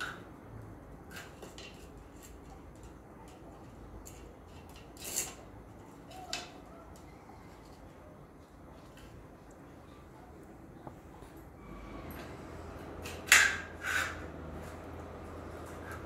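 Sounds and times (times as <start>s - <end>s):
plastic toy clicks and scrapes: 0.0s - 6.6s, 12.8s - 16.0s.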